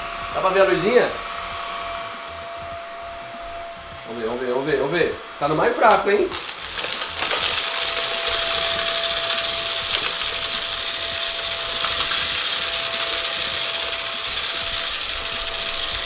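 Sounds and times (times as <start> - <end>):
vacuum cleaner motor whine: 0.0 - 16.0
debris ticking in vacuum: 5.9 - 16.0.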